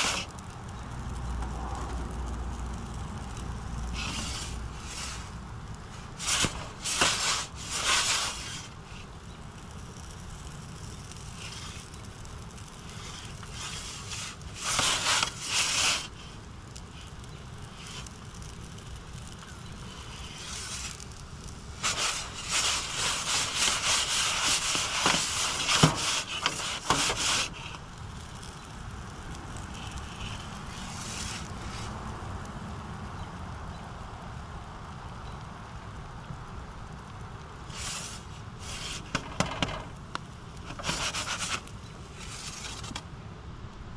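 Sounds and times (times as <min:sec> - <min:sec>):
metal pizza peel scraping: 0:00.0 - 0:00.4, 0:03.9 - 0:05.3, 0:05.9 - 0:09.1, 0:12.9 - 0:16.3, 0:21.8 - 0:27.8, 0:29.7 - 0:31.9, 0:37.7 - 0:40.0, 0:40.6 - 0:43.0
steady low rumble: 0:00.0 - 0:25.6.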